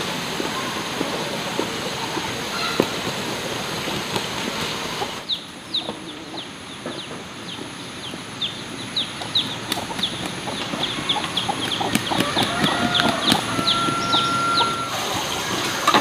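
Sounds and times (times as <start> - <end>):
steady rushing noise: 0.0 - 16.0
chickens peeping: 0.1 - 16.0
scattered knocks: 5.9 - 14.9.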